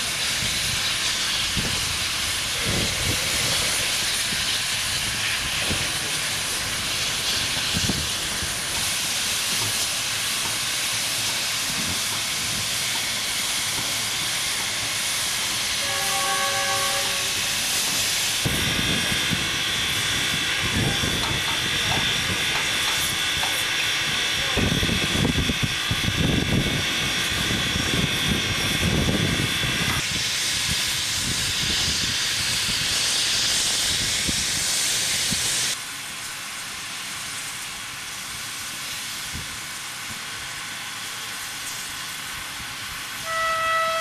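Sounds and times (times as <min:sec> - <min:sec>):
steam locomotive hissing: 0:00.0 - 0:44.0
steam whistle blast: 0:15.8 - 0:17.5, 0:43.2 - 0:44.0.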